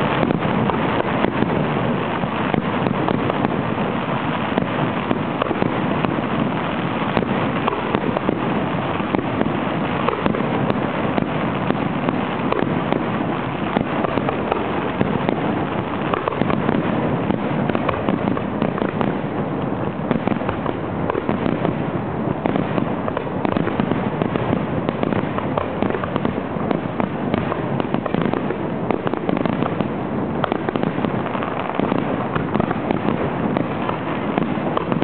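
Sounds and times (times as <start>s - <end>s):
fireworks popping and crackling: 0.0s - 35.0s.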